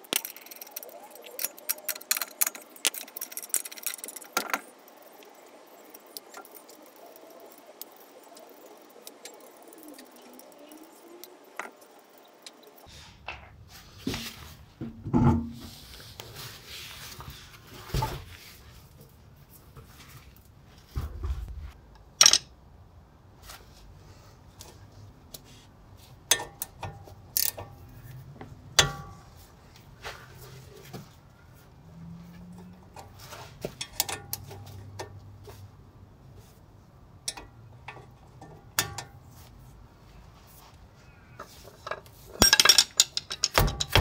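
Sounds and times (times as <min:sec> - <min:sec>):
metallic clinks and knocks: 0:22.2 - 0:22.5, 0:41.8 - 0:44.0.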